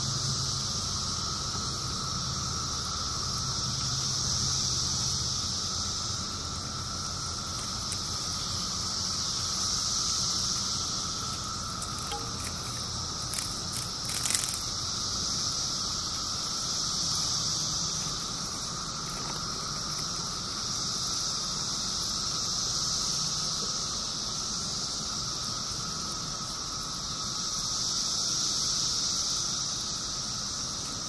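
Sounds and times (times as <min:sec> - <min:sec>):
cicadas droning: 0:00.0 - 0:31.0.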